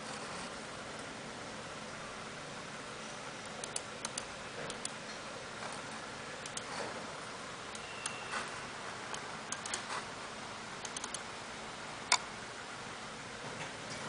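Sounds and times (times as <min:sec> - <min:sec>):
mouse button clicks: 0:10.8 - 0:11.2.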